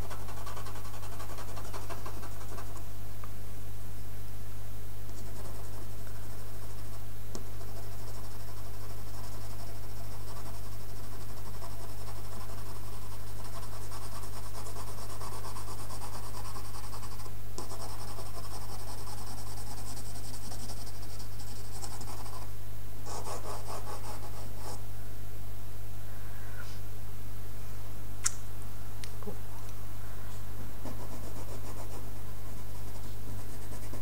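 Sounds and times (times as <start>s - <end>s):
pencil scratching on card: 0.0s - 2.8s, 5.2s - 22.5s, 23.1s - 24.8s, 30.8s - 34.0s
steady low hum: 0.0s - 34.0s.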